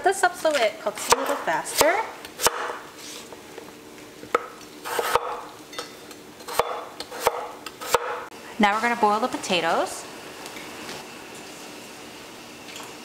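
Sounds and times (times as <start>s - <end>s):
knife slicing potatoes: 0.5s - 3.3s, 4.3s - 5.4s, 6.4s - 8.2s.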